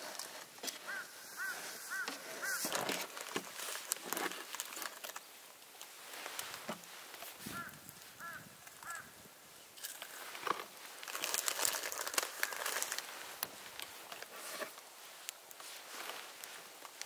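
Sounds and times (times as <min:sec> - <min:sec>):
paper towel crinkling: 0:10.0 - 0:17.0.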